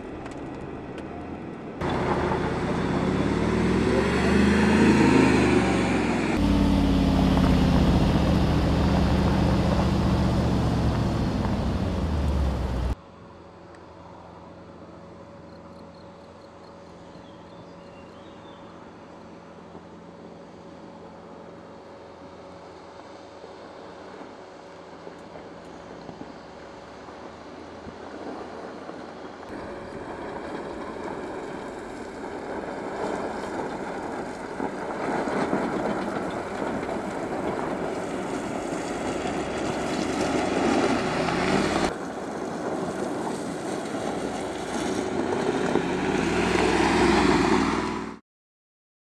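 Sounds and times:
car engine running: 1.8s - 13.0s
tyres on gravel: 1.8s - 13.0s, 28.2s - 48.0s.

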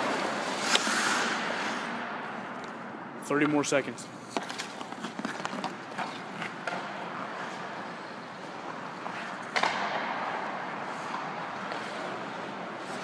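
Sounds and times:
ice skate blades scraping: 0.0s - 2.1s, 4.2s - 13.0s
hockey stick tapping puck: 4.3s - 13.0s.

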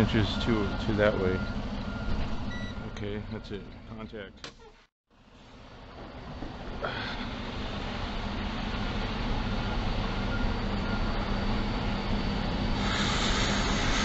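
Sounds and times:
diesel engine idling: 0.0s - 3.8s, 5.4s - 14.0s
air hiss: 12.8s - 14.0s.

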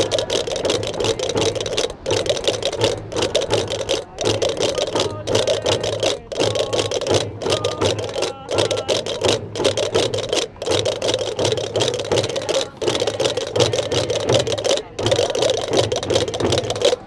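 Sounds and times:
wooden castanets clattering: 0.0s - 17.0s.

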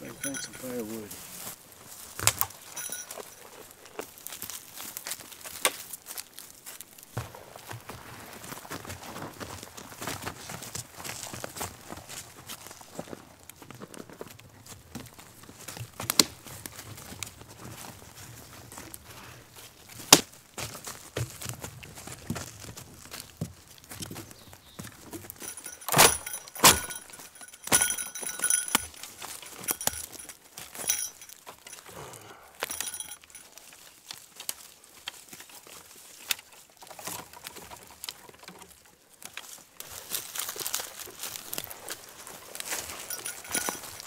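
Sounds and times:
twigs rustling and scraping: 0.0s - 31.9s, 32.6s - 44.0s
dry branches snapping: 2.0s - 2.6s, 4.0s - 7.0s, 15.6s - 17.3s, 19.9s - 21.5s, 33.6s - 38.4s, 39.2s - 42.9s.

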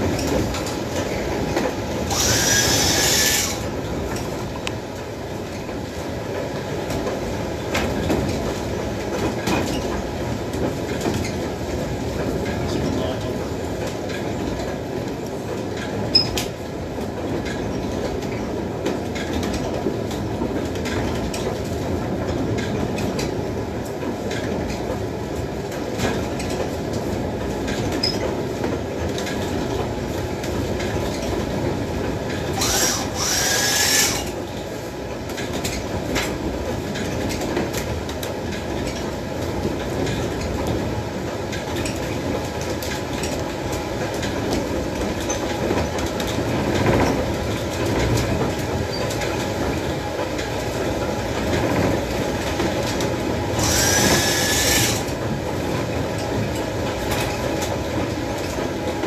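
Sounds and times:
mill machinery rumbling clatter: 0.0s - 59.0s
high squeal: 2.1s - 3.6s.

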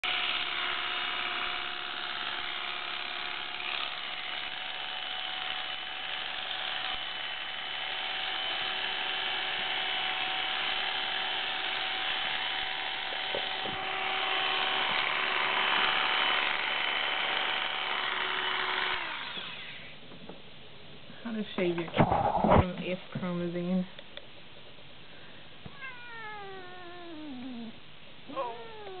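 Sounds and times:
electric clippers buzzing: 0.0s - 19.9s.

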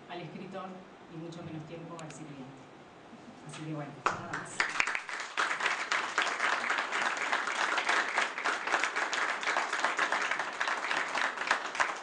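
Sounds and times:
audience clapping: 4.0s - 12.0s.

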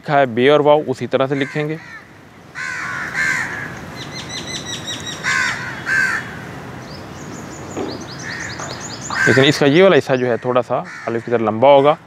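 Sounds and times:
hoarse bird calls: 1.2s - 12.0s.

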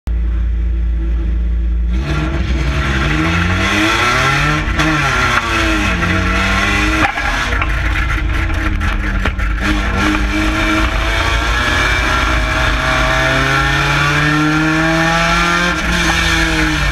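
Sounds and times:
car engine revving: 0.2s - 16.9s
sharp knocks: 4.7s - 16.9s.

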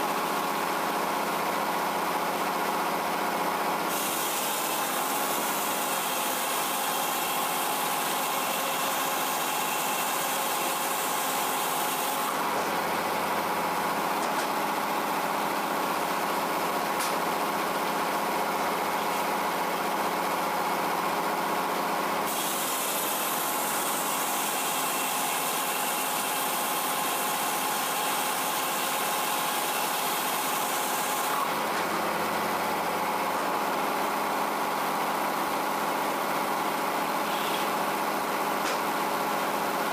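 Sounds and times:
circular saw blade cutting wood: 3.9s - 12.4s, 22.2s - 31.6s.

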